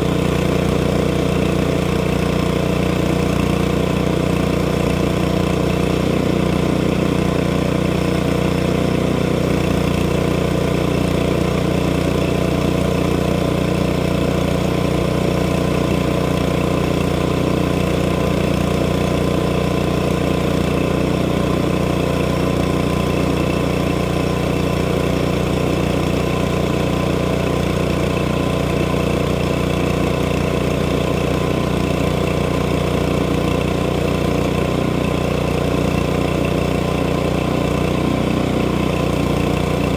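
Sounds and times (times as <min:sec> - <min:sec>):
small gasoline engine under load: 0:00.0 - 0:39.9.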